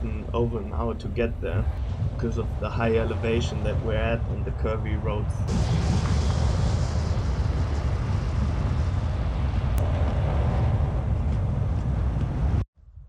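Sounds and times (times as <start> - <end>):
road and engine rumble: 0.0 - 12.6
wind noise on microphone: 0.0 - 13.0.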